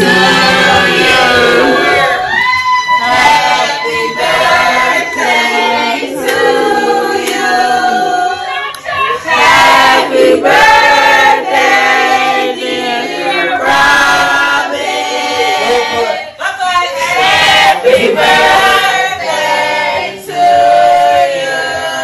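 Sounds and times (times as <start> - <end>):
choir singing long notes: 0.0 - 16.2, 17.1 - 22.0.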